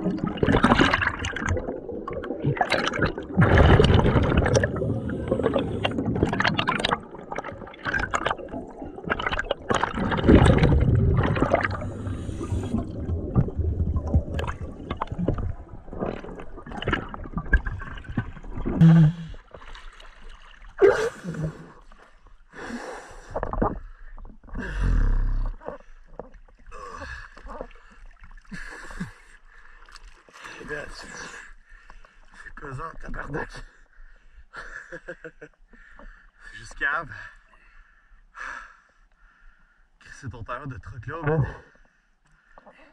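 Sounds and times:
water splashing: 0.0 - 22.2
underwater bubbling and gurgling: 0.0 - 32.2.

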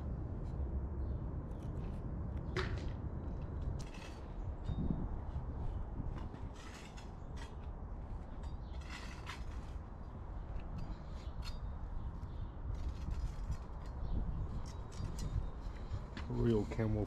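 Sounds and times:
wind on microphone: 1.6 - 7.5, 10.6 - 16.3.

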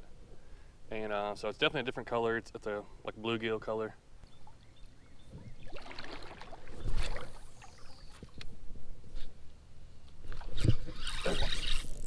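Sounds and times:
line hissing off reel: 10.6 - 12.0.

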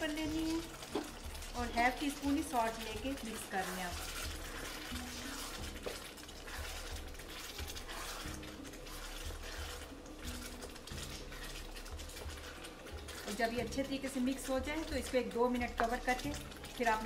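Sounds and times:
spatula scraping and squelching sauce: 0.2 - 17.0.

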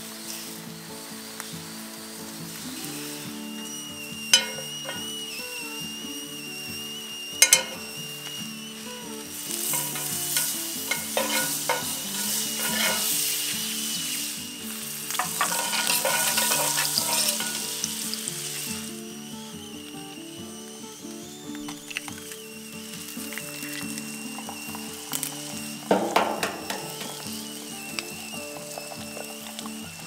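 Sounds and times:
butter sizzling and crackling: 0.0 - 30.0
sharp metallic clinks: 4.3 - 5.1, 7.4 - 7.9, 9.6 - 13.3.

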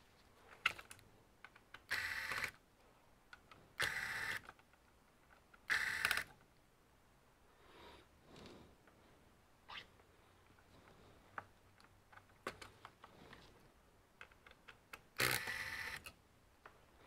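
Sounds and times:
electric screwdriver running: 1.9 - 2.5, 15.2 - 16.0.

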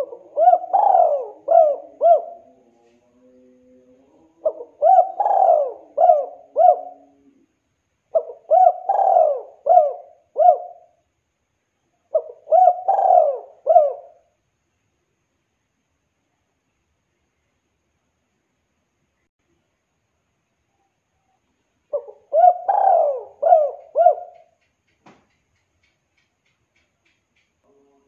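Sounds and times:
dove cooing: 0.0 - 11.0, 12.1 - 14.3, 21.9 - 24.6.

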